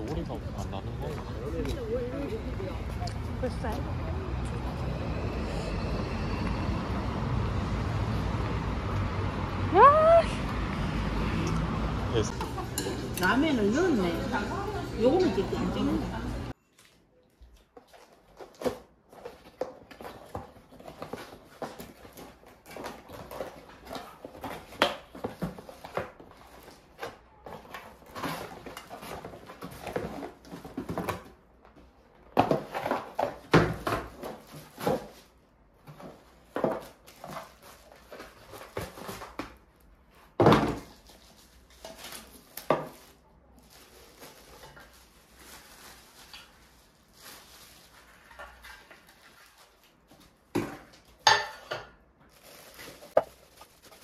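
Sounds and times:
utensils clinking against bowls: 0:12.3 - 0:16.5.

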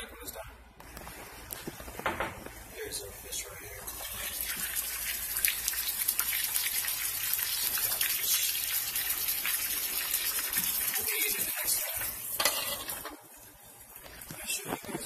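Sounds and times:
fish frying in a pan: 0:03.9 - 0:13.2.

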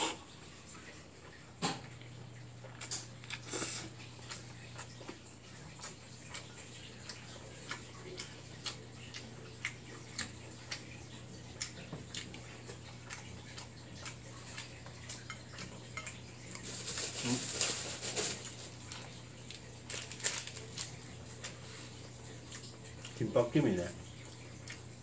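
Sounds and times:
plastic packet rustling: 0:16.6 - 0:19.1, 0:19.8 - 0:21.0.

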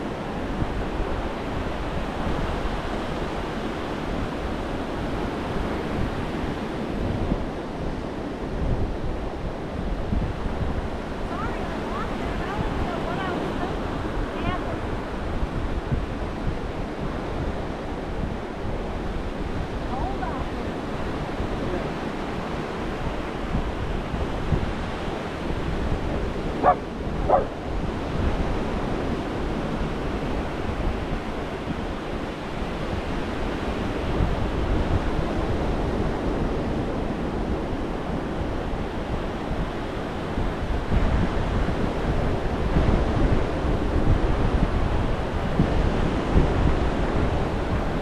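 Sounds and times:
surf washing up beach: 0:00.0 - 0:48.0
wind buffeting microphone: 0:00.0 - 0:48.0
dog barking: 0:26.6 - 0:27.6.

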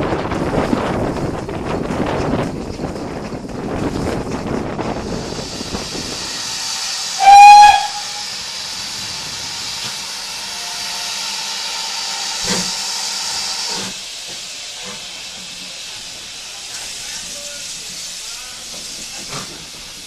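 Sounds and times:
hiss of escaping steam: 0:05.0 - 0:20.0
steam whistle blast: 0:07.1 - 0:08.4.

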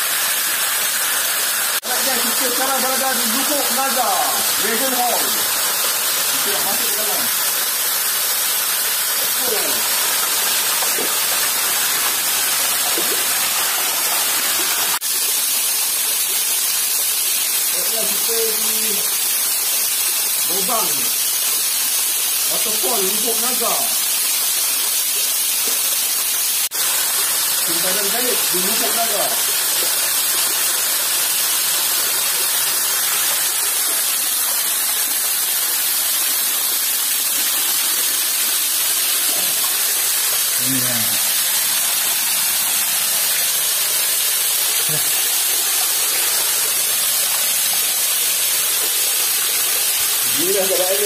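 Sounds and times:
waterfall rushing: 0:00.0 - 0:15.0, 0:27.4 - 0:30.2, 0:38.1 - 0:51.0.

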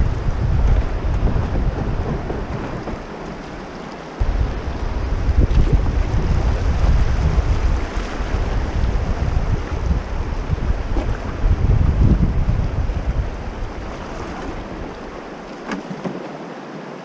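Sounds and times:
wind buffeting microphone: 0:00.0 - 0:15.6
river water rushing over rocks: 0:13.8 - 0:17.0.

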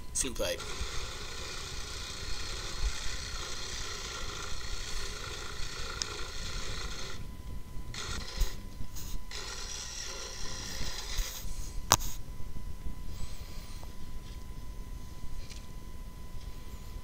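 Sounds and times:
reciprocating saw cutting wood: 0:00.2 - 0:07.3, 0:07.9 - 0:12.0.

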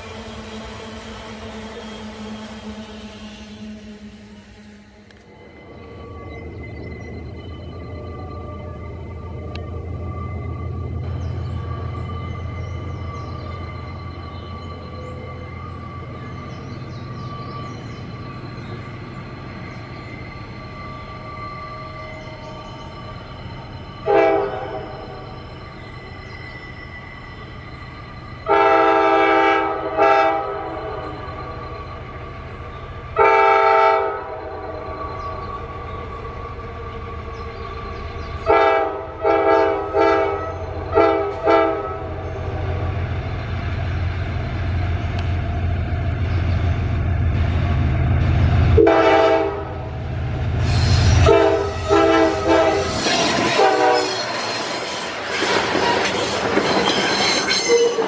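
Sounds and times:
diesel engine low rumble: 0:00.0 - 0:20.9, 0:40.5 - 0:50.7
train air horn blasts: 0:24.0 - 0:25.0, 0:28.4 - 0:31.2, 0:33.2 - 0:34.5, 0:38.4 - 0:42.2, 0:48.8 - 0:49.9, 0:50.6 - 0:54.3, 0:57.6 - 0:58.0
wagons clattering and squealing on rails: 0:50.6 - 0:58.0.

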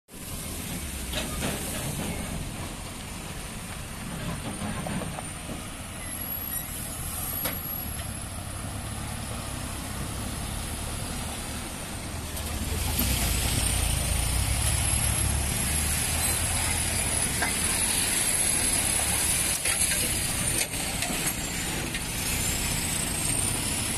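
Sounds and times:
lorry diesel engines: 0:00.1 - 0:23.9.

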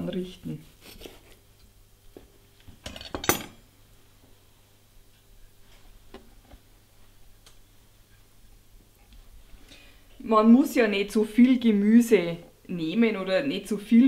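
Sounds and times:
metal cutlery clatter on board: 0:02.8 - 0:03.6.

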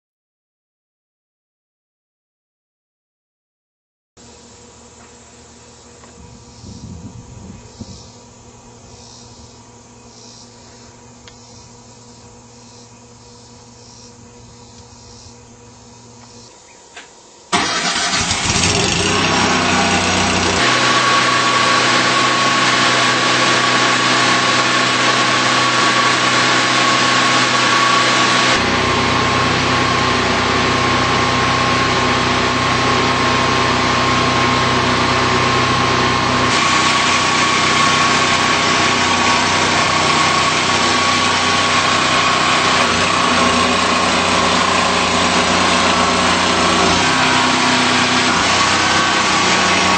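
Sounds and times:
engine starting and running: 0:17.5 - 0:49.9.

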